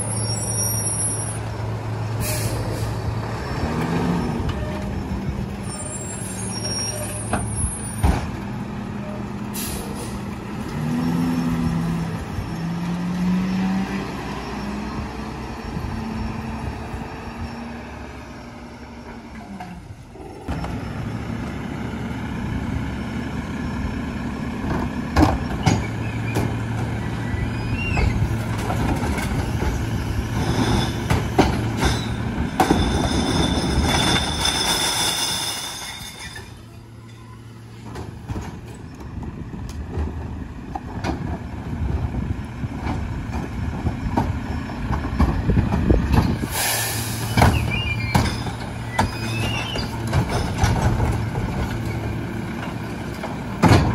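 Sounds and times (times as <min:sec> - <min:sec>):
garbage truck running: 0:00.0 - 0:53.9
carts knocking and banging: 0:27.9 - 0:36.6, 0:47.3 - 0:53.9
short hiss of air: 0:46.4 - 0:47.4.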